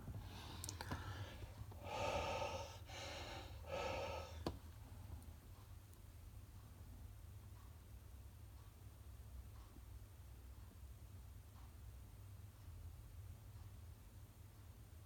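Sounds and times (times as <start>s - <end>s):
man breathing out hard: 0.4s - 4.5s.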